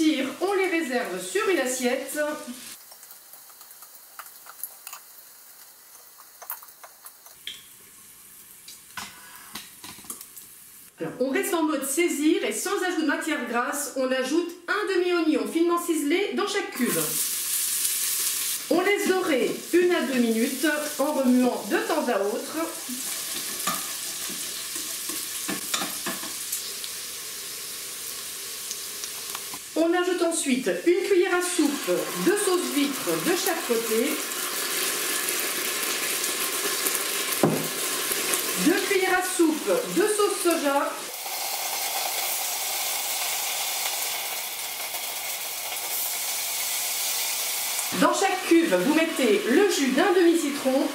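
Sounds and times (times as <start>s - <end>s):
hot oil crackling and popping: 0.0s - 10.9s, 16.8s - 50.9s.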